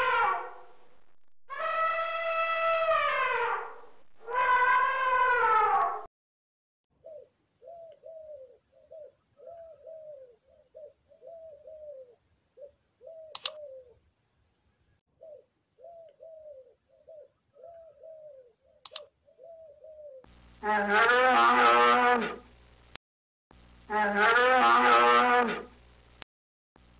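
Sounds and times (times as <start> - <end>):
short low falling calls: 0.0 - 6.1, 23.9 - 25.7
mouse clicks: 13.4 - 13.6, 18.8 - 19.1.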